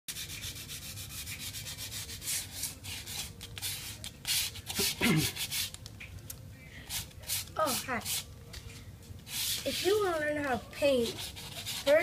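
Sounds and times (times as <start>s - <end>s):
sanding plaster by hand: 9.3s - 10.1s, 10.9s - 12.0s.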